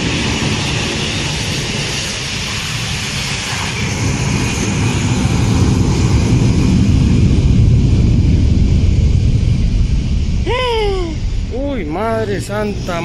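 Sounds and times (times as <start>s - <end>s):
jet rumbling with hiss: 9.3s - 13.0s.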